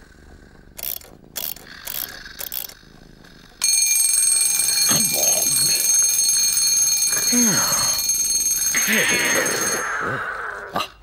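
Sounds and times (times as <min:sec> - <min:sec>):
alarm clock bell ringing: 0:03.6 - 0:10.2.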